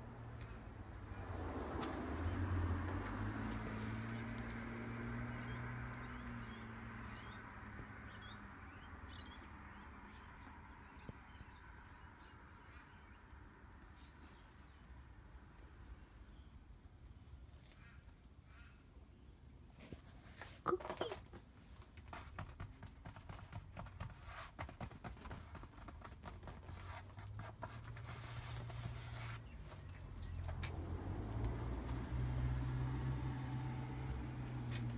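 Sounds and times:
passing vehicle engine hum: 0.0s - 10.1s, 28.1s - 34.9s.

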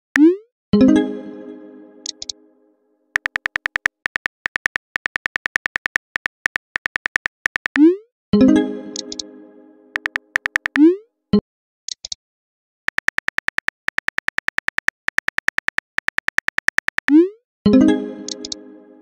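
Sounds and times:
phone keyboard typing clicks: 2.0s - 2.4s, 3.2s - 7.9s, 9.0s - 9.2s, 10.0s - 10.9s, 12.9s - 17.2s, 18.3s - 18.6s.

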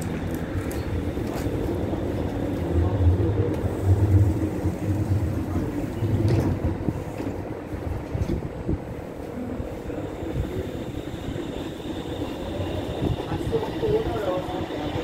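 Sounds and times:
light-rail car equipment running: 0.0s - 15.0s
train doors sliding shut: 3.5s - 9.6s.

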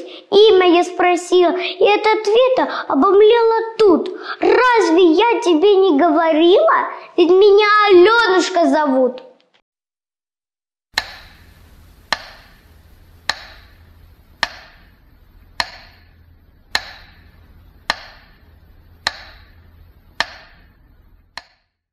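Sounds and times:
faint low hum: 11.0s - 21.4s
sharp ringing ticks: 11.0s - 21.6s.

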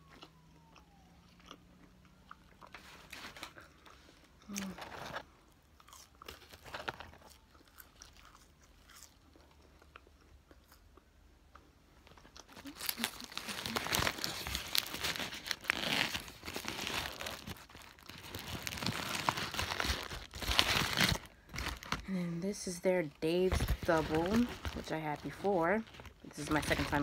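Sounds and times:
faint chewing: 0.0s - 14.1s
foil wrapper crinkling: 6.2s - 8.1s, 12.0s - 22.2s, 23.2s - 27.0s.

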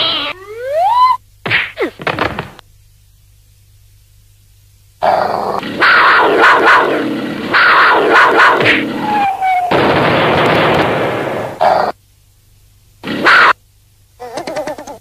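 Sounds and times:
cartoon animal growling and snarling: 5.0s - 8.1s, 11.6s - 12.0s, 14.2s - 15.0s.

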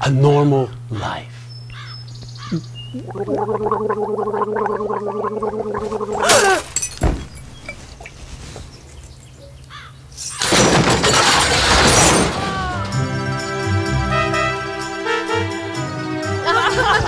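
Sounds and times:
liquid gurgling and bubbling: 2.9s - 6.6s
glass shattering crash: 6.3s - 7.7s, 10.2s - 12.8s.

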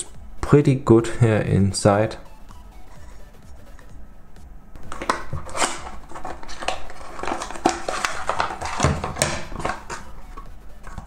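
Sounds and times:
card and paper rustling: 4.8s - 11.0s.

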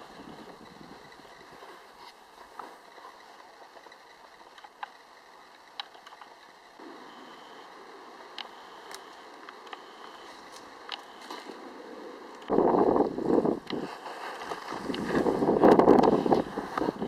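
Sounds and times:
sharp clicks and ticks: 2.5s - 6.8s, 8.2s - 11.2s.

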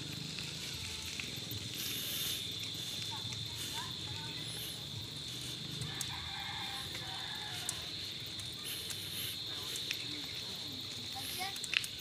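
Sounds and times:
crickets chirring: 0.0s - 12.0s
low rumble of riding noise: 0.0s - 12.0s
faint clicks: 5.7s - 12.0s.

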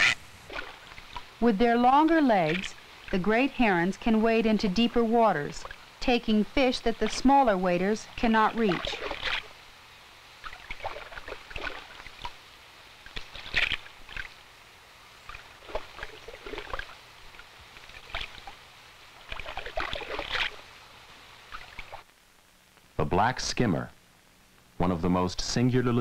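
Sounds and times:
shallow water splashing: 0.0s - 6.0s, 6.6s - 9.6s, 10.4s - 12.4s, 13.0s - 14.5s, 15.2s - 20.7s, 21.4s - 22.0s.

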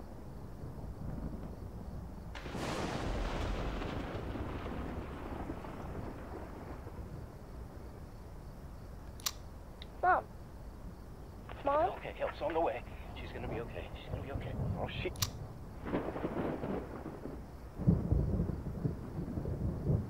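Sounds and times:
distant thunder rolling: 0.0s - 20.0s
sharp click: 9.1s - 9.9s, 15.1s - 15.4s.

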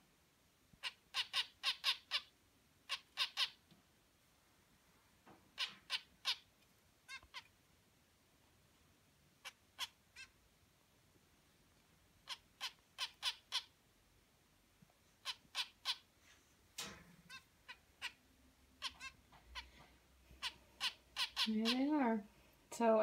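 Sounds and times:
finches chirping: 17.3s - 19.8s, 20.4s - 22.2s.

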